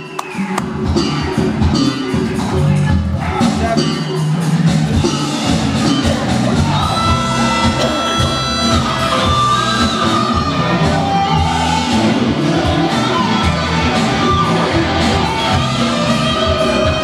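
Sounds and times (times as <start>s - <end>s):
drum kit: 0.0s - 17.0s
keyboard: 0.0s - 17.0s
electric guitar: 5.0s - 17.0s.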